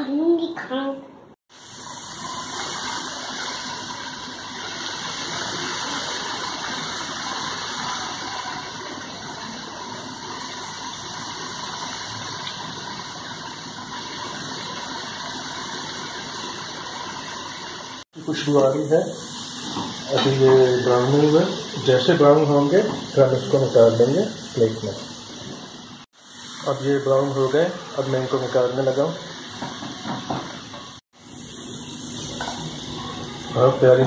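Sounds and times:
chips sizzling in hot oil: 1.5 - 34.0.

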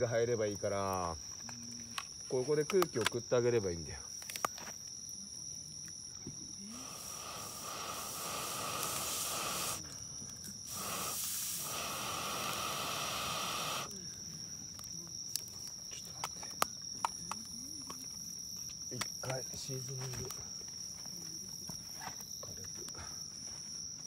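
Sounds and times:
air blowing into fire: 6.6 - 9.8, 10.6 - 13.9.

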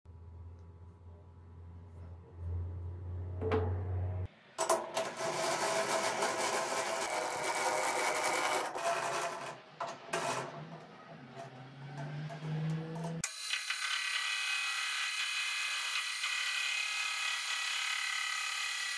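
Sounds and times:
metal knocks: 3.4 - 4.0
lathe chuck rattling and grinding: 4.7 - 13.2.

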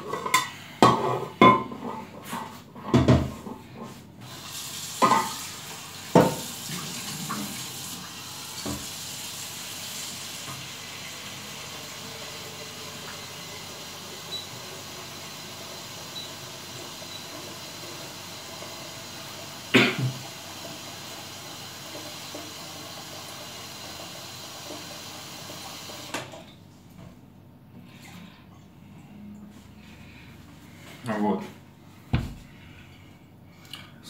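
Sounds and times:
running water hissing: 4.2 - 26.1.

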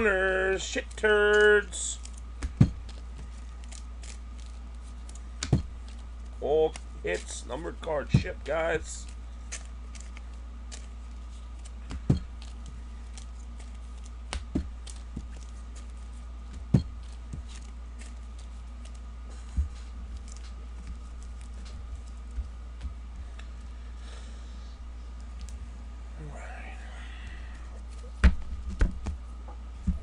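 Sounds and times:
steady low hum: 0.0 - 30.0
cards clicking and tapping on table: 14.3 - 15.9.

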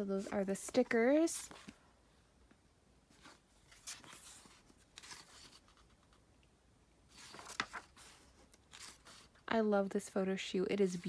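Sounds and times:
paper pages swishing: 3.1 - 6.1, 7.1 - 9.4
page rustle and flap: 3.2 - 6.2, 7.1 - 9.4.

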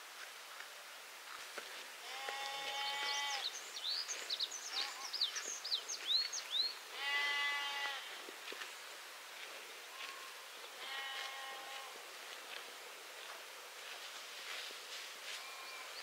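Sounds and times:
young farm animal bleating: 2.0 - 3.6, 4.6 - 5.4, 6.9 - 8.2, 9.9 - 12.0, 15.3 - 16.0
bird chirping: 3.0 - 6.8.

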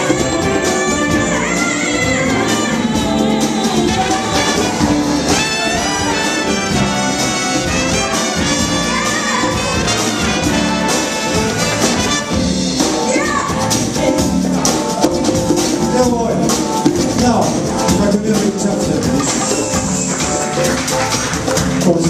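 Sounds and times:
trumpets and trombones: 0.0 - 12.8
big band jazz: 0.0 - 22.0.

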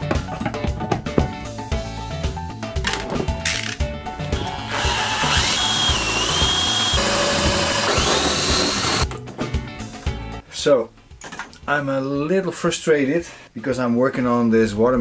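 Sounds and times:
background music with steady beat: 0.0 - 13.6
power drill whining into plywood: 4.4 - 9.0.

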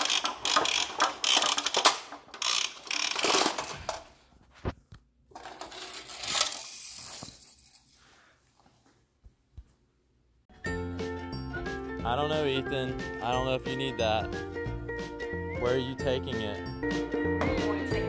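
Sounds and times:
plastic crank rattling clicks: 0.0 - 4.0, 5.3 - 7.8.

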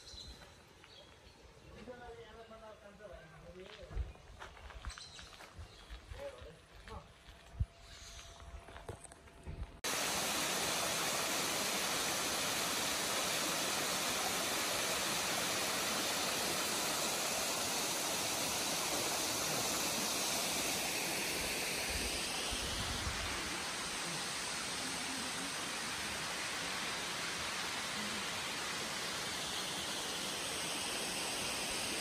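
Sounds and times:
waterfall roaring: 9.8 - 32.0.

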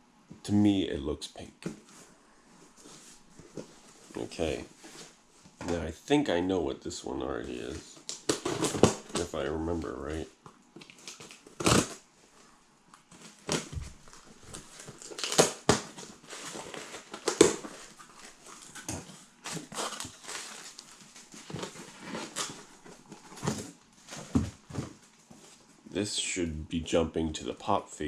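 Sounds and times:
cardboard and packing rustling: 1.6 - 5.9, 7.4 - 10.2, 13.0 - 25.9.

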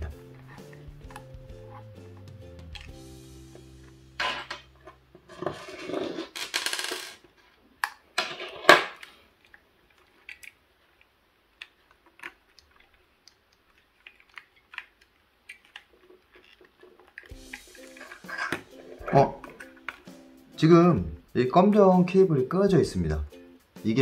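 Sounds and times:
plastic parts scraping: 4.2 - 9.3, 11.7 - 20.2
plastic clicks: 8.8 - 10.6, 11.6 - 18.7.

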